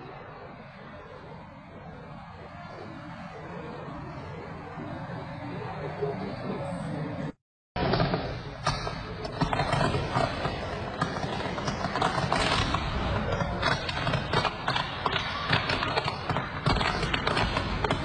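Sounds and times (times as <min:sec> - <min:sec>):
electrical wiring crackling: 0:07.8 - 0:18.0.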